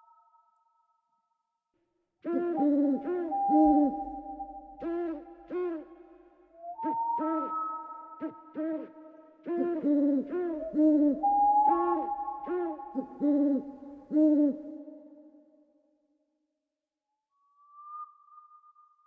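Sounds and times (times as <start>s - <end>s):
owl hooting: 2.2s - 15.2s
steady held tones: 2.6s - 8.5s.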